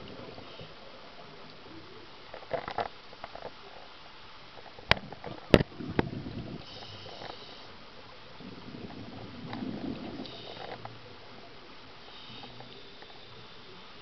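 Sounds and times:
exhaled air bubbling: 0:04.8 - 0:14.0
regulator inhale hiss: 0:06.6 - 0:07.8, 0:10.2 - 0:10.8, 0:12.0 - 0:13.8.

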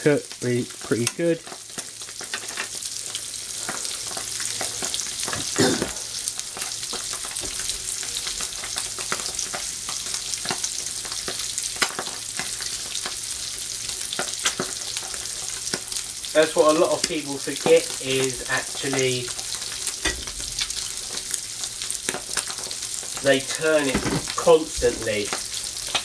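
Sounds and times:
fish sizzling in a frying pan: 0:00.0 - 0:26.0.

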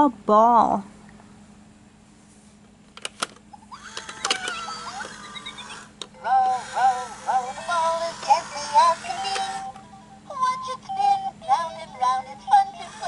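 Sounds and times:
toy clicks: 0:03.8 - 0:09.8
electronic warbling and chirping: 0:04.4 - 0:06.0
synthesized voice singing: 0:06.2 - 0:13.0.

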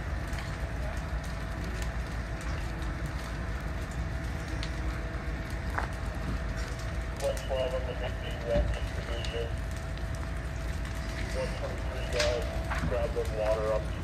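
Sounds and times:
fire crackling with sharp pops: 0:00.0 - 0:14.0
low rumble: 0:00.0 - 0:14.0.

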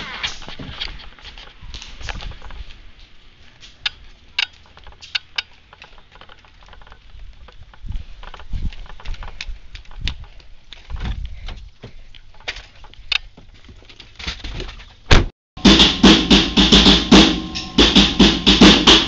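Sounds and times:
footsteps: 0:00.0 - 0:15.1.

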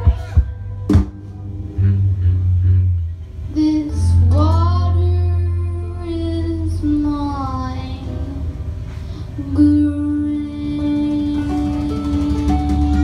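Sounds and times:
upright bass: 0:00.0 - 0:13.0
girl singing: 0:03.5 - 0:08.5, 0:09.4 - 0:13.0
acoustic guitar: 0:10.3 - 0:13.0.

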